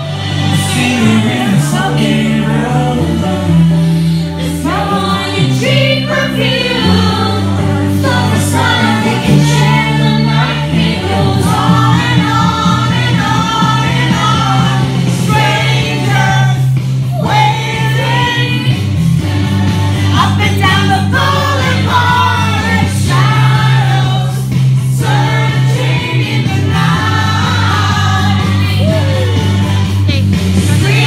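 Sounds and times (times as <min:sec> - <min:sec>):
loud backing track with bass: 0:00.0 - 0:31.0
people singing karaoke: 0:00.0 - 0:31.0.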